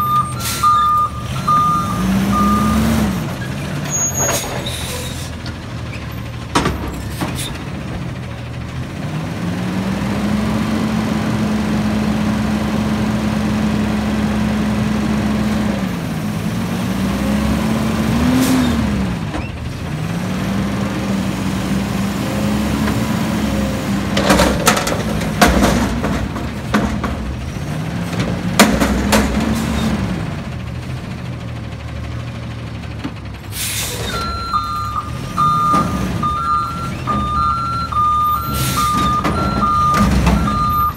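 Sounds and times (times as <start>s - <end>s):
reversing alarm beeping: 0.0s - 3.0s, 34.0s - 40.9s
diesel engine revving: 0.0s - 40.9s.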